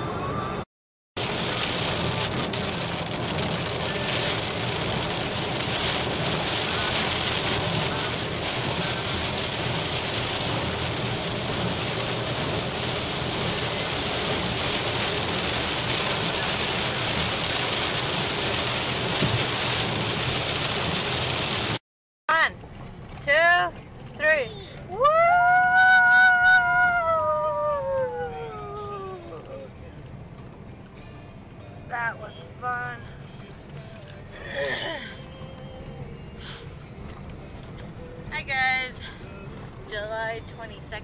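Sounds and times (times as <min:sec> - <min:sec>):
heavy rain on a car: 0:01.2 - 0:22.4
tyres on wet road: 0:01.2 - 0:41.0.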